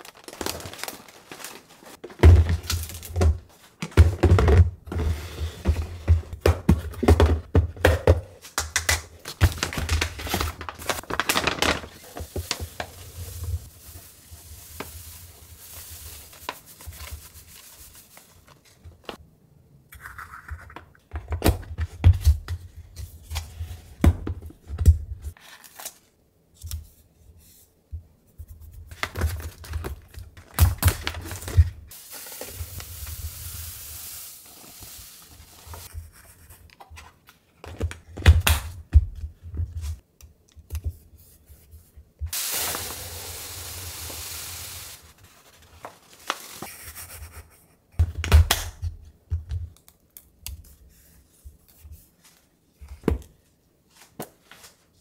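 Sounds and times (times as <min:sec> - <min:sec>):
powder pouring hiss: 0:12.0 - 0:16.7, 0:31.9 - 0:35.9, 0:42.3 - 0:45.2.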